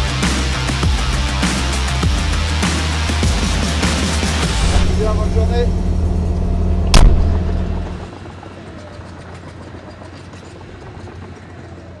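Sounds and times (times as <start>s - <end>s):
diesel engine idling: 3.2s - 11.9s
distant site machinery: 4.4s - 12.0s
sharp knock: 6.8s - 7.9s.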